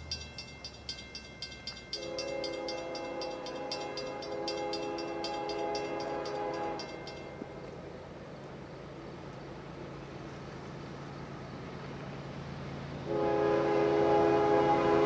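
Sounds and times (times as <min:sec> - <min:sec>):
fast even bell ringing: 0:00.0 - 0:07.4
train air horn blast: 0:02.0 - 0:07.6, 0:13.1 - 0:15.0.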